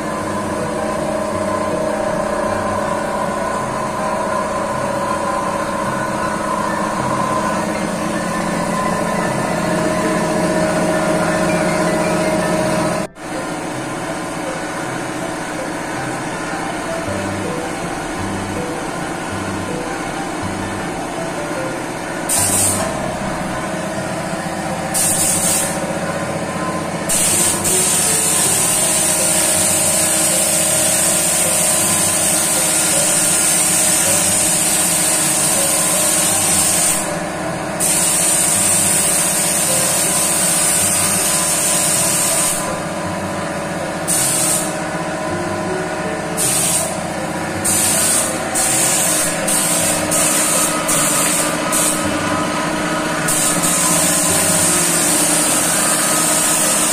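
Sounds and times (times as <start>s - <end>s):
machine hum: 0.0s - 56.9s
paint spray gun hissing: 22.3s - 23.0s, 24.9s - 25.8s, 27.1s - 37.1s, 37.8s - 42.8s, 44.1s - 44.8s, 46.4s - 47.0s, 47.6s - 52.2s, 53.3s - 56.9s.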